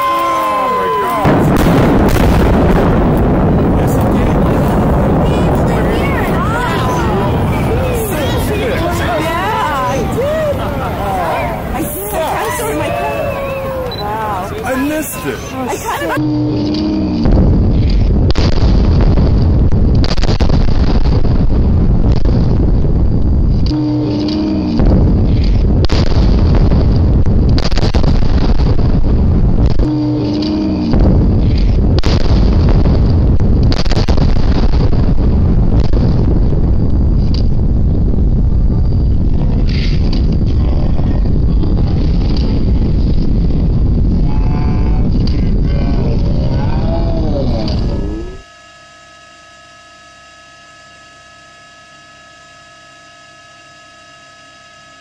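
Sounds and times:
electrical hum: 0.0 - 55.0
high steady tones: 0.8 - 20.0, 41.2 - 55.0
sharp explosive cracks: 1.2 - 8.7, 17.2 - 23.8, 24.8 - 29.9, 30.9 - 40.5
rumbling explosive blast: 1.2 - 12.8, 17.0 - 48.4.

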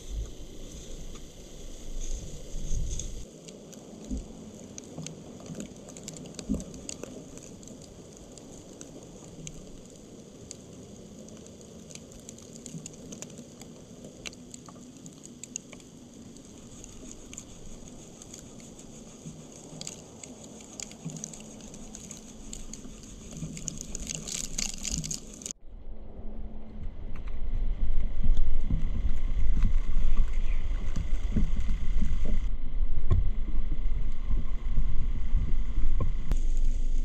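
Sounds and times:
pattering on dry leaves: 0.0 - 25.6
steady hiss: 0.0 - 25.6, 34.4 - 37.0.

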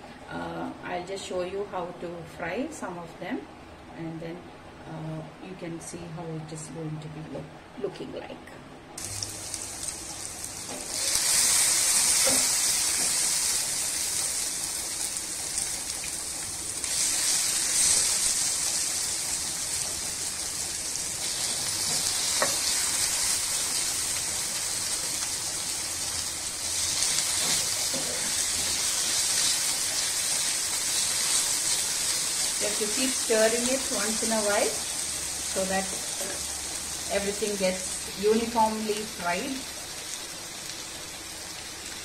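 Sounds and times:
vegetables sizzling in oil: 9.0 - 42.0.

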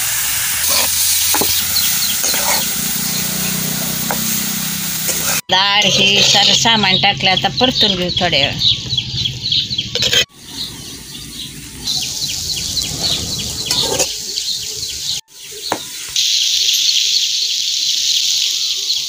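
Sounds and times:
food sizzling in oil: 0.0 - 6.6, 9.9 - 19.0
bird chirping: 0.7 - 3.8, 5.8 - 19.0
spatula stirring: 2.2 - 2.7, 5.1 - 6.6.

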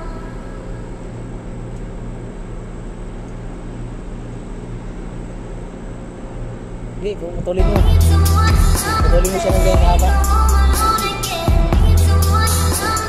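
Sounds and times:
machinery drone: 0.0 - 13.0
even hiss: 7.0 - 13.0.

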